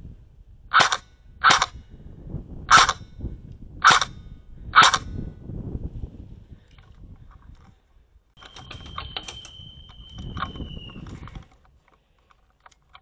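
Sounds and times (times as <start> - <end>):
camera handling rustling and clicks: 10.4 - 13.0.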